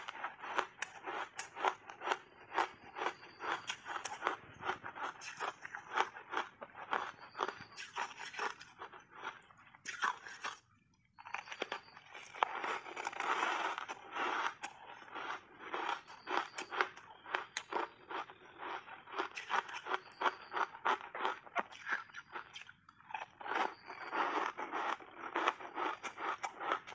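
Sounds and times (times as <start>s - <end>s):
ice crunching between teeth: 0.0s - 26.9s.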